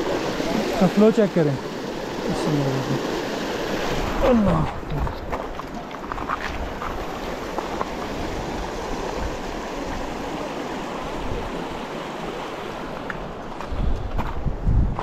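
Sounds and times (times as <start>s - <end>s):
stream rushing: 0.0s - 14.0s.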